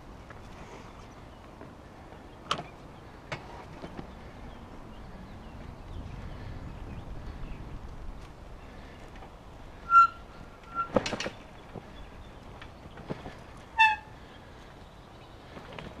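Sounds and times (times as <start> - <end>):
wind and tyres hissing: 0.0 - 16.0.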